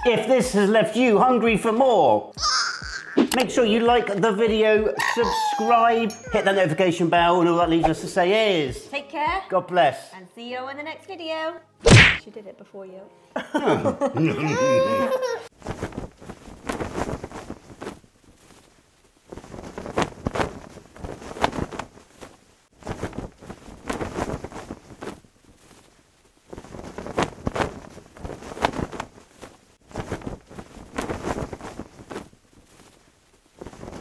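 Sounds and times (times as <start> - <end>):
flag flapping in wind: 15.5 - 34.0.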